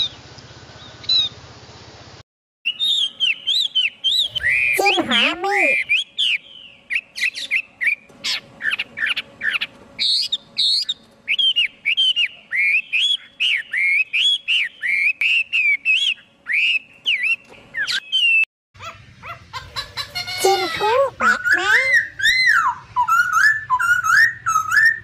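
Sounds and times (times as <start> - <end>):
bird singing whistled phrases: 2.7 - 8.0, 8.6 - 18.5, 20.3 - 25.0.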